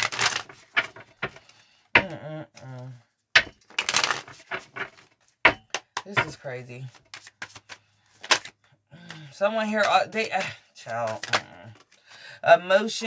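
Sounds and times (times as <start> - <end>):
cards riffle shuffling: 0.0 - 12.0
cards clicking: 6.9 - 9.2, 10.9 - 11.9.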